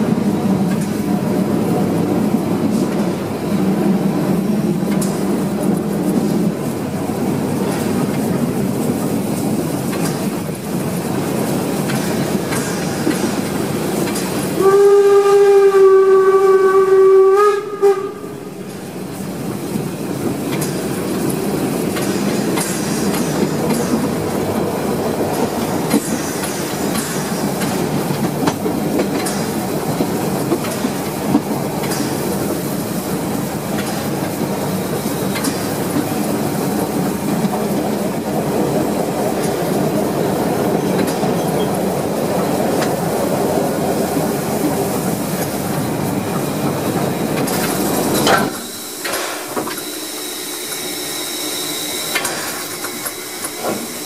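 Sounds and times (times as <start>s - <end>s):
train wheels rumbling on rails: 0.0s - 54.0s
steam whistle blast: 14.6s - 18.5s.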